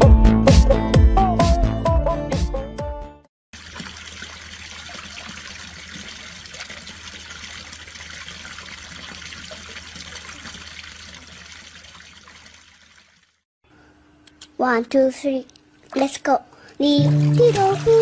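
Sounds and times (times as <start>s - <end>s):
fountain water pouring and splashing: 3.6s - 13.4s, 17.0s - 18.0s.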